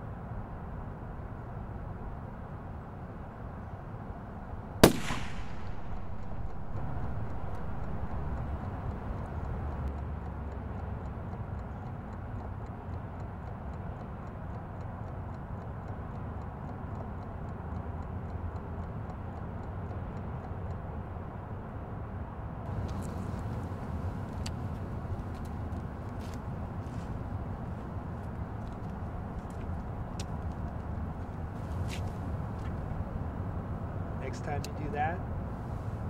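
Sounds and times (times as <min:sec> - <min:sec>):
low outdoor rumble: 0:00.0 - 0:12.9, 0:20.8 - 0:36.0
gunshot: 0:04.8 - 0:06.8.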